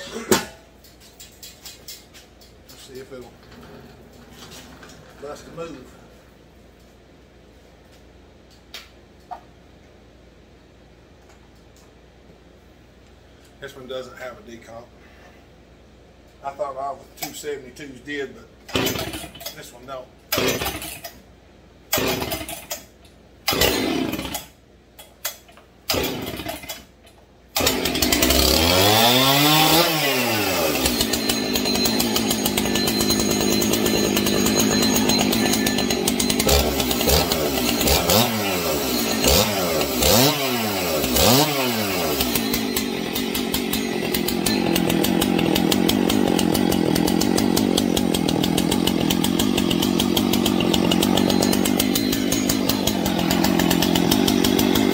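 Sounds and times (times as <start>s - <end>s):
chainsaw engine revving and idling: 18.7s - 19.4s, 20.3s - 21.0s, 21.9s - 22.7s, 23.5s - 24.5s, 25.9s - 26.8s, 27.6s - 54.9s
chainsaw starter rope pulls: 18.7s - 19.7s, 20.3s - 21.1s, 23.5s - 24.5s, 25.9s - 26.8s, 27.6s - 54.9s.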